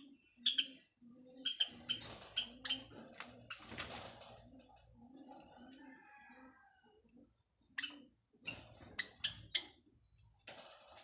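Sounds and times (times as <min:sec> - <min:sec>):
sparrows chirping in sharp clicks: 0:00.0 - 0:05.8, 0:07.6 - 0:11.0.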